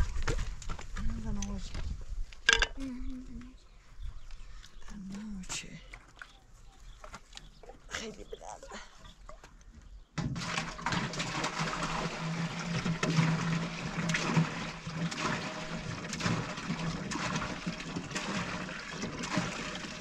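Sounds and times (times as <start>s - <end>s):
water running and splashing: 10.4s - 20.0s.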